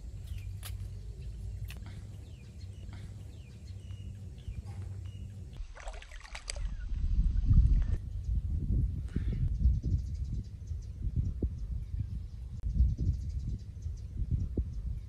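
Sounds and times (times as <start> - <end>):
wind buffeting microphone: 0.0 - 15.0
faint bird chirps: 0.2 - 5.7.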